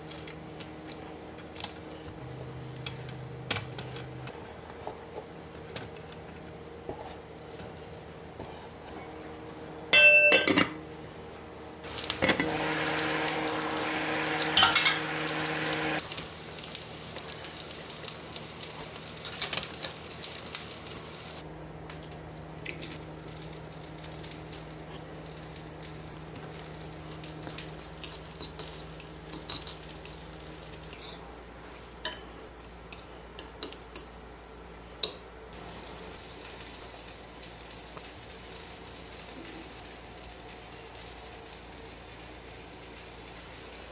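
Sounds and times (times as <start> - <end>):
utensils clinking in glass bowls: 10.0 - 10.8, 14.6 - 15.1, 27.8 - 30.2
steaming pot hissing: 11.8 - 17.4.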